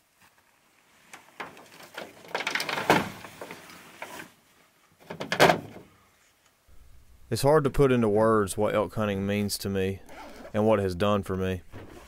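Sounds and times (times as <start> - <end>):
nylon bags rustling and scraping: 0.1 - 5.0.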